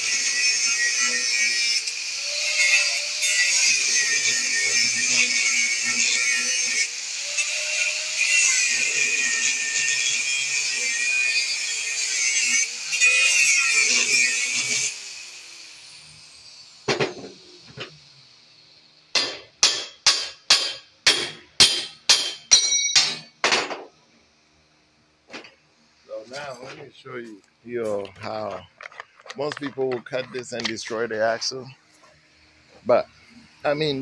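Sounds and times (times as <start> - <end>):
angle grinder cutting steel: 0.0 - 18.2
sharp metal strikes: 19.1 - 23.8.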